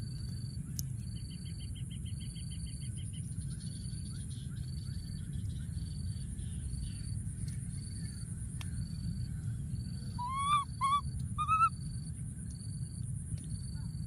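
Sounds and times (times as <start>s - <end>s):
baby monkey high calls: 10.2s - 11.7s
faint repeating chirp: 10.2s - 11.7s.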